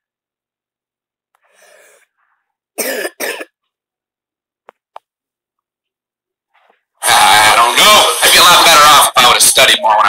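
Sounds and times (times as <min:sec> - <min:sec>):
girl coughing: 0:02.8 - 0:03.6.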